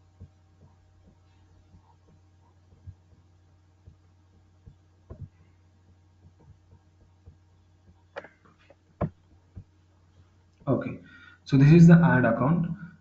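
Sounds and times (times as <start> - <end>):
soft thumps and clicks: 0.0 - 10.8
steady low hum: 0.0 - 13.0
sharp knock: 4.6 - 5.4.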